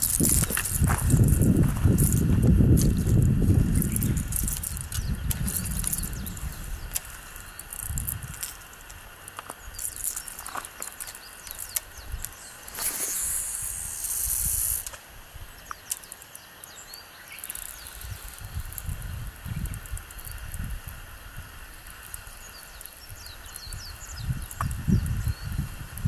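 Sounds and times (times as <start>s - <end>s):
wind rumble on microphone: 0.0s - 10.5s, 11.4s - 15.8s, 17.7s - 26.0s
steady hiss: 0.0s - 26.0s
fishing reel clicking: 13.0s - 15.0s, 17.3s - 19.0s.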